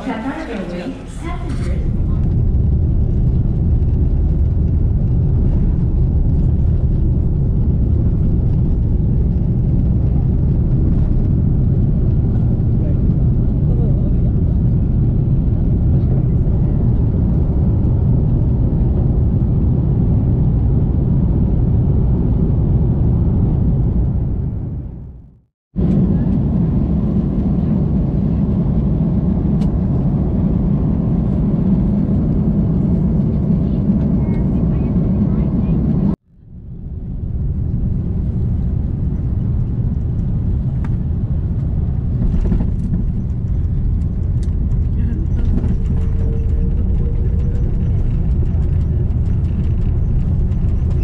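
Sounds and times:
jet engine cabin rumble: 0.0s - 51.0s.

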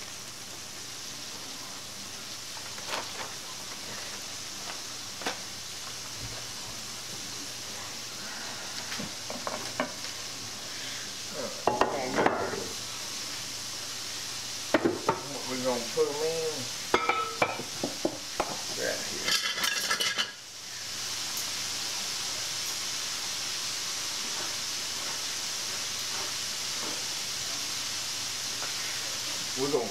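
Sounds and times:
hot oil sizzling: 0.0s - 29.9s
utensils and pans clattering: 16.9s - 18.6s, 19.2s - 20.4s.

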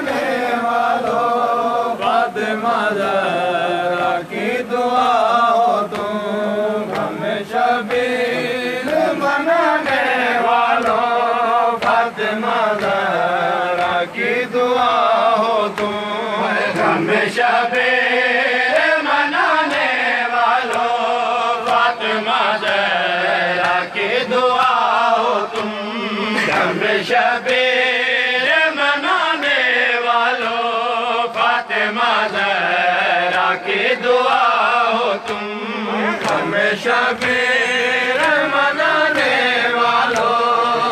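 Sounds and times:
men chanting a lament: 0.0s - 40.9s
chest-beating slaps: 35.2s - 38.5s, 39.1s - 40.9s.

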